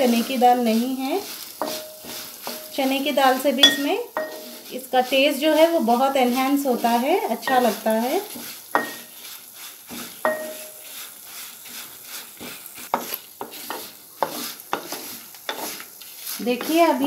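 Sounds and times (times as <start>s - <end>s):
spatula scraping metal pan: 0.0s - 17.0s
spices sizzling in oil: 0.0s - 17.0s
spatula knocking on pan: 1.6s - 2.7s, 3.6s - 4.5s, 7.5s - 9.1s, 9.9s - 10.8s, 12.4s - 15.7s.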